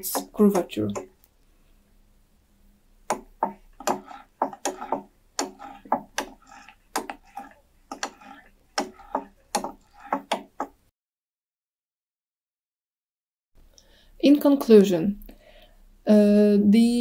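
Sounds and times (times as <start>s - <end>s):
blade chopping wood: 3.1s - 10.8s.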